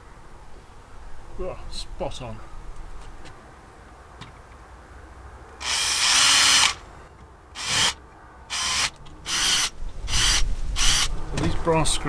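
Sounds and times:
power drill whirring: 5.6s - 6.8s, 7.6s - 11.1s.

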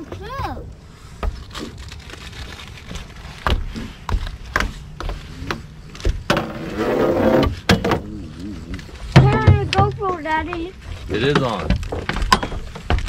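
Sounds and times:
knocks and thumps on boat deck: 9.1s - 10.6s.

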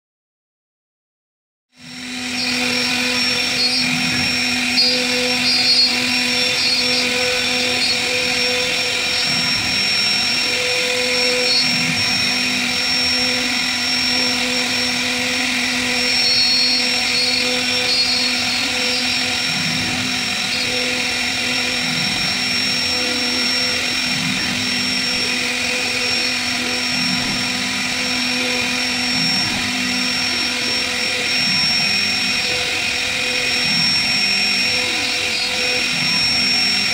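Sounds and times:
router spindle high whine: 1.8s - 36.9s.

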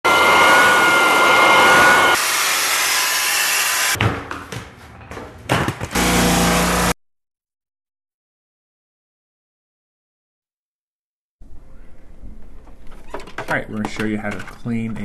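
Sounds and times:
whining motor: 0.0s - 4.0s, 5.9s - 7.0s
knocks and clicks: 12.8s - 15.0s.

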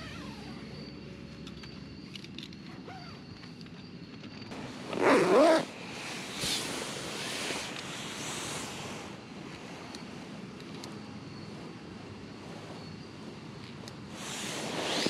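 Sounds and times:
tent fabric rustling: 4.5s - 15.0s.

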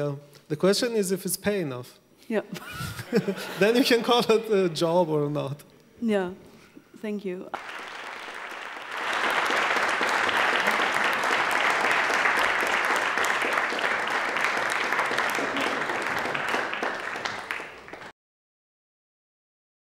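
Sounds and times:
audience applauding: 7.6s - 18.1s.

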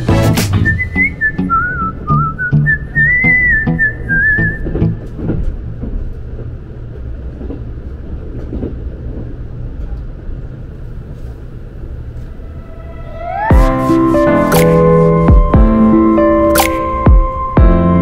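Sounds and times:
train wheels rumbling: 0.0s - 18.0s.

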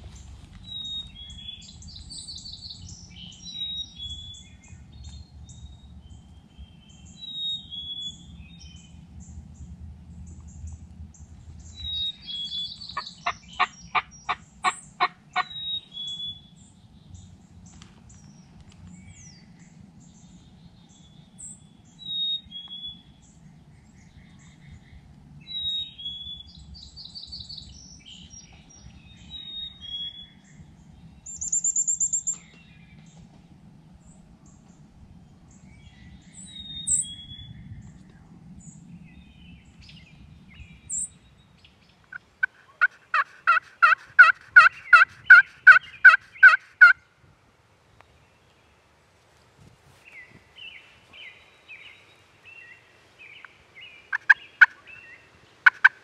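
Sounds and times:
songbirds chirping and trilling: 0.0s - 56.0s
loud bird calls: 10.3s - 33.3s, 35.5s - 37.9s, 38.6s - 47.1s, 50.1s - 56.0s.

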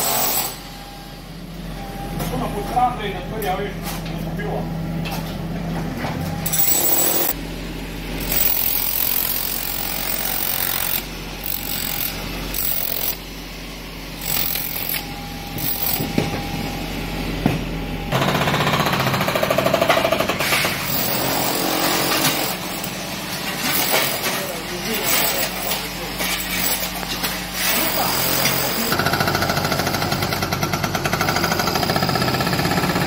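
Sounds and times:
electric demolition hammer: 0.0s - 0.6s, 6.4s - 7.4s, 8.2s - 13.3s, 14.2s - 16.8s, 17.4s - 33.0s
hydraulic breaker hammering concrete: 0.0s - 0.6s, 8.2s - 13.2s, 14.2s - 16.7s, 17.4s - 33.0s
excavator engine running: 4.6s - 21.4s.

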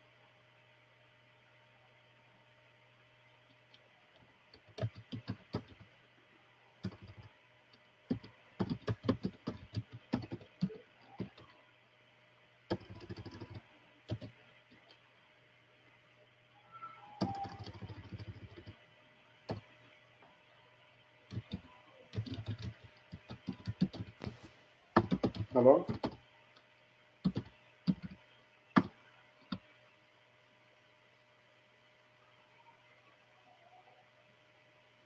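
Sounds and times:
steady low hum: 0.0s - 35.0s
typing on keyboard: 4.5s - 5.8s, 6.8s - 7.3s, 8.1s - 11.5s, 12.7s - 14.4s, 17.2s - 18.8s, 21.3s - 24.4s, 25.0s - 26.2s, 27.2s - 28.2s.

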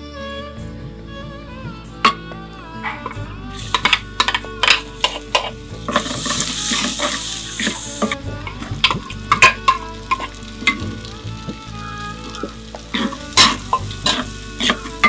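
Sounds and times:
ladle scraping a pot: 2.8s - 11.6s, 12.2s - 15.0s
food sizzling in hot oil: 3.6s - 15.0s.

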